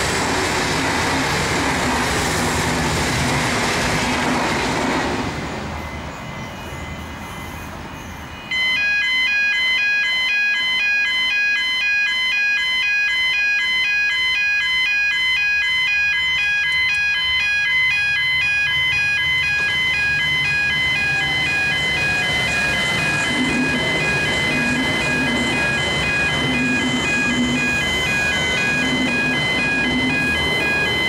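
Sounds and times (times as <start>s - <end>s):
diesel train rumbling: 0.0s - 8.5s, 16.8s - 31.0s
electronic chimes ringing: 5.8s - 31.0s.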